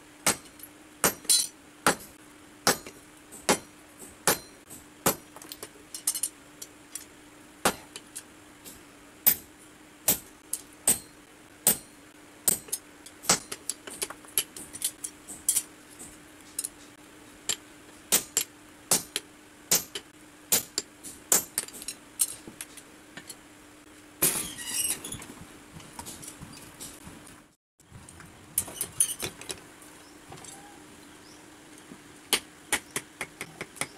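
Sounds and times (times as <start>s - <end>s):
steady low hum: 0.0s - 33.9s
hammer striking iron on anvil: 0.2s - 6.2s, 7.6s - 8.0s, 9.3s - 9.5s, 10.1s - 13.6s, 17.5s - 21.8s.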